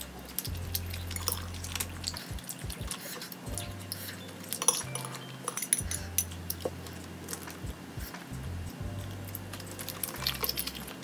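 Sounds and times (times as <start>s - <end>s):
utensils clinking on dishware: 0.0s - 7.6s
soft background music: 0.0s - 11.0s.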